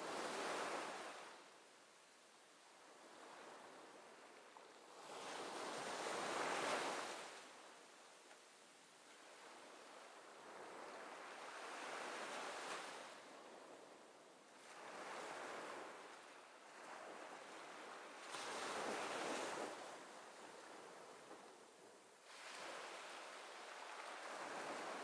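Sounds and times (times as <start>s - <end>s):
waves washing: 22.2s - 25.0s.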